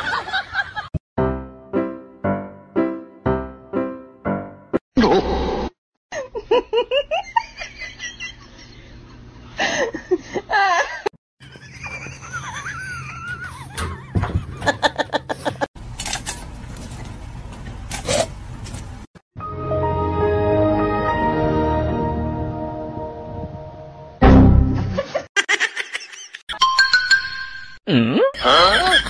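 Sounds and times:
person laughing hard: 9.6 - 15.7, 24.9 - 26.4, 28.4 - 29.0.

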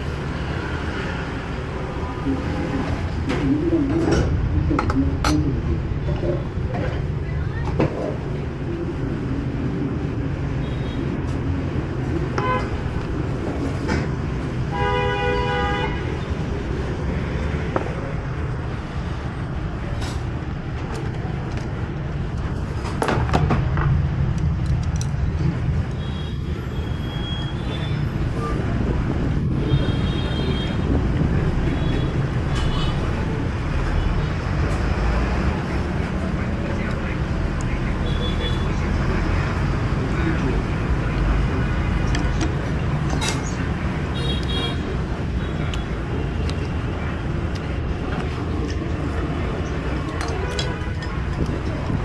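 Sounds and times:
street traffic rumble: 0.0 - 52.0
vehicle horns honking: 12.4 - 12.7, 14.7 - 16.3.

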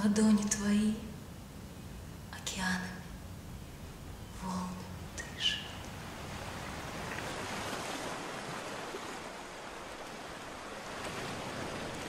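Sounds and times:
waves breaking: 5.8 - 12.0.

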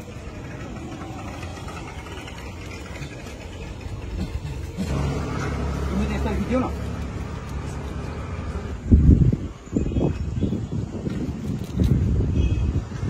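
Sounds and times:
vehicle engine idling: 0.0 - 9.6.

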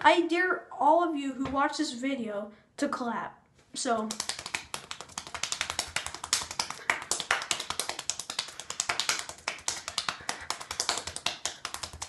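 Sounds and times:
rapid hand clapping: 4.0 - 12.0.

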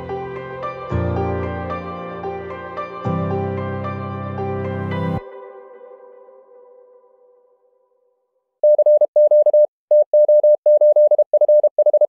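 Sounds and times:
music: 0.0 - 8.4
morse code tone: 8.6 - 12.0.

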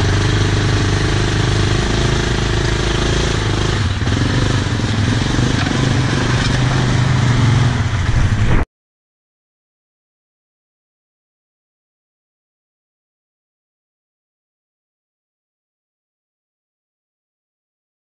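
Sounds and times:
atv engines idling: 0.0 - 8.2.

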